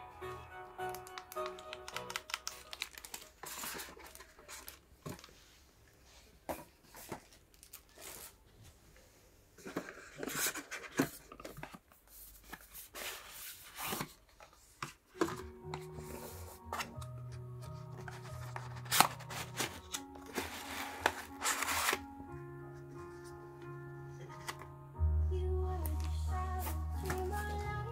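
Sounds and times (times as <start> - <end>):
plastic bag crinkling: 1.3 - 5.3.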